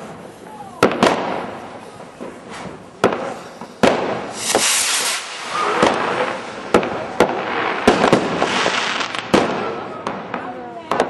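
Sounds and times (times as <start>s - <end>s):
fireworks bangs: 0.0s - 11.0s
hissing rush of sparks: 1.9s - 9.3s.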